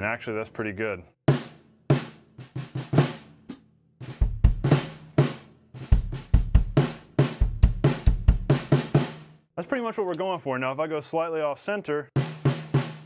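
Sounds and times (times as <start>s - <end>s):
bass drum beat: 4.0s - 9.2s.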